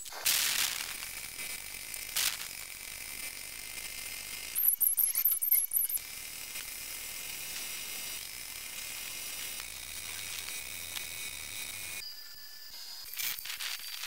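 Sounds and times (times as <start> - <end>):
spray gun hissing: 0.0 - 1.2.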